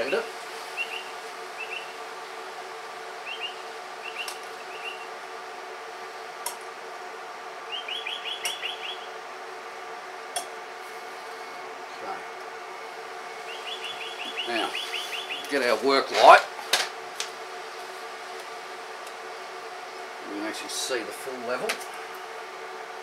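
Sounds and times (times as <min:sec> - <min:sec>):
birds chirping: 0:00.0 - 0:05.3, 0:07.6 - 0:09.4, 0:11.1 - 0:16.4
steady background hum: 0:00.0 - 0:23.0.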